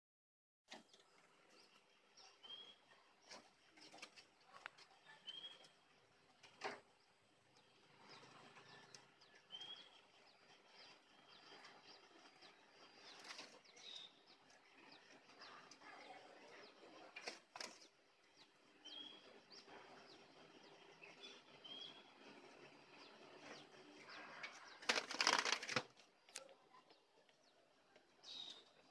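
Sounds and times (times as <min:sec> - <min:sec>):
wing flaps: 0:24.5 - 0:26.0.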